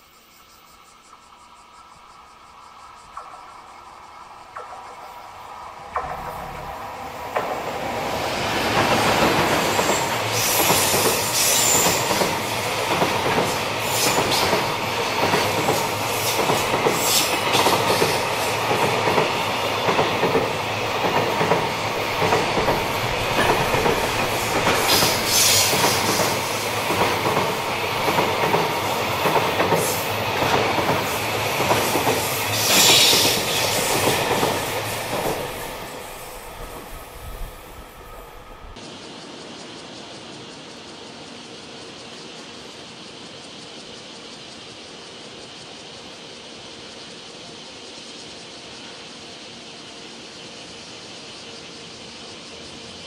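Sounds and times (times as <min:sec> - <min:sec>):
train wheel squeals: 0:00.0 - 0:38.8
train wheels clattering over rail joints: 0:05.8 - 0:37.4.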